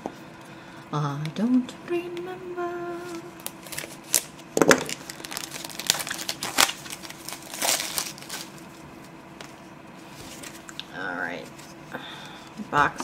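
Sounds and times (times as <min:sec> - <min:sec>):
cardboard box crinkling: 0:04.9 - 0:08.5.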